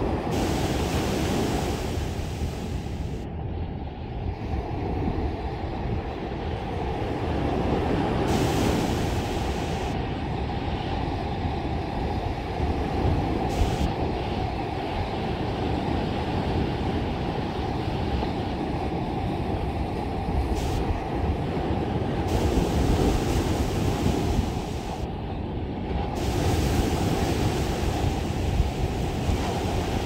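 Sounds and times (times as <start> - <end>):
waves breaking on sand: 0.0 - 3.2, 4.5 - 11.1, 19.8 - 25.1, 25.9 - 30.0
wind buffeting microphone: 0.0 - 30.0.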